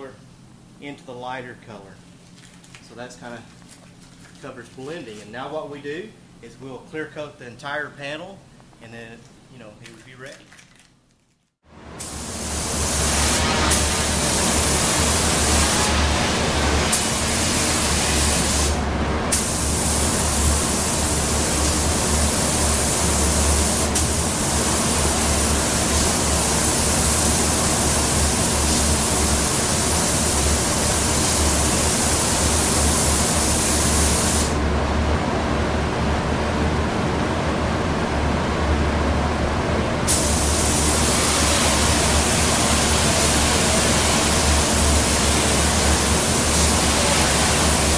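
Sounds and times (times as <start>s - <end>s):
steady low hum: 11.7s - 47.9s
spray gun hissing: 12.0s - 34.6s, 40.1s - 47.9s.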